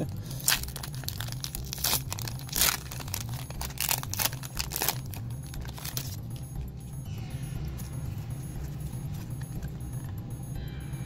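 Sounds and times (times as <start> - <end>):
foil wrapper crinkling and tearing: 0.1 - 6.2
cards pulled out: 0.2 - 6.4.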